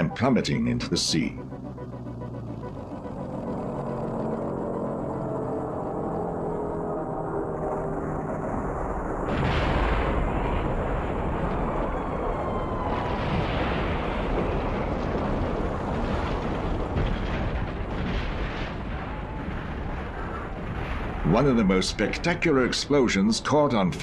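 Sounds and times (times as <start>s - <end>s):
explosions and gunfire: 9.2s - 22.8s.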